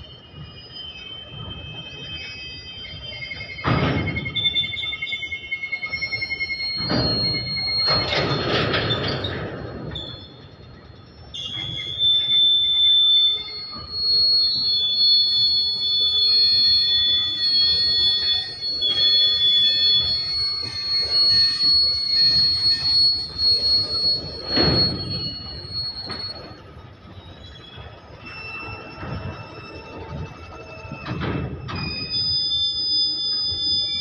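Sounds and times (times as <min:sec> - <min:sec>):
train wheels squealing: 0:00.0 - 0:34.0
freight wagons rumbling: 0:13.5 - 0:28.2.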